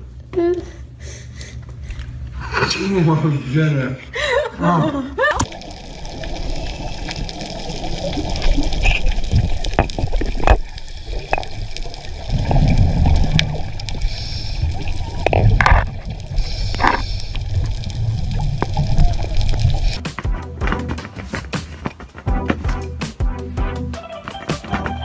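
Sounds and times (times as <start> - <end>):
underwater bubbling and gurgling: 5.4 - 20.0
bursts of hiss: 13.9 - 15.0, 16.3 - 17.6.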